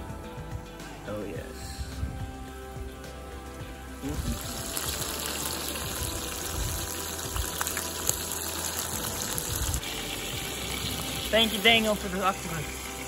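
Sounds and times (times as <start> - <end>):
food sizzling in hot oil: 3.9 - 13.0.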